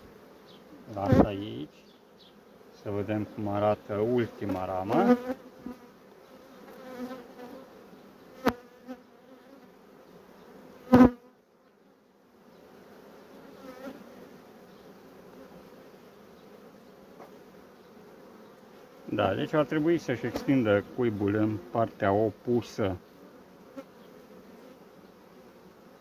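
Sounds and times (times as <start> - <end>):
honeybees buzzing: 0.0 - 26.0.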